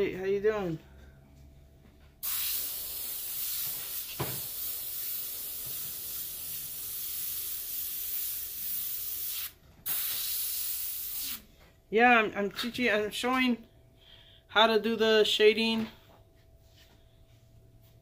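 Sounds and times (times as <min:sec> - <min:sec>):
airbrush spraying hiss: 0:02.2 - 0:11.5.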